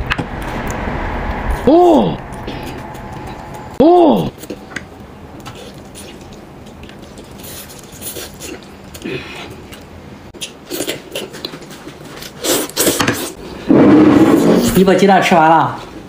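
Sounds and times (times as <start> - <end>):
person chewing and slurping noodles: 5.4 - 13.4.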